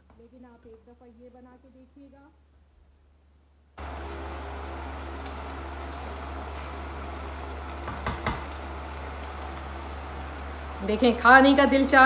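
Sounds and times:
curry bubbling in a pot: 3.8s - 12.0s.

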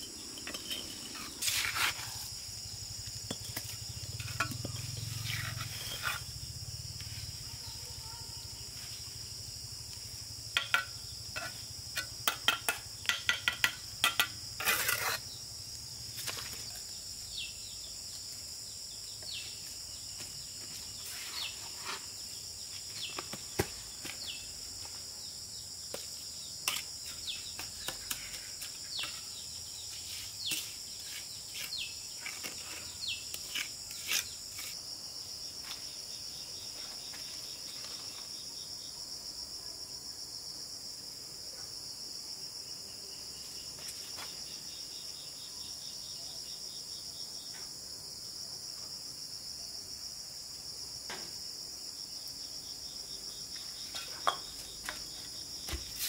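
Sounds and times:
high-pitched insect chorus: 0.0s - 56.0s
trowel tapping and scraping bricks: 0.3s - 2.3s, 3.1s - 6.3s, 10.6s - 15.2s, 53.9s - 55.0s.

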